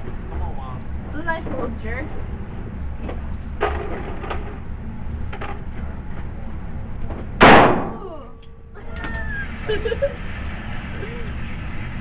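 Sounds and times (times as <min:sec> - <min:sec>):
steady low rumble: 0:00.0 - 0:12.0
muffled gunshots: 0:07.4 - 0:08.0.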